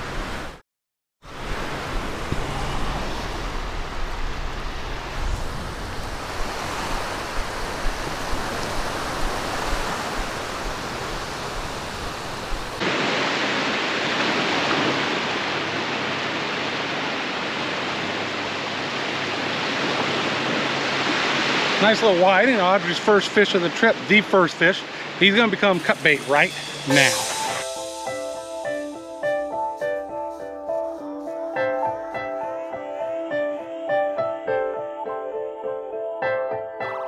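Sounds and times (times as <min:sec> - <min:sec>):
surf washing onto beach: 0:01.3 - 0:30.5
wind buffeting microphone: 0:01.4 - 0:13.0.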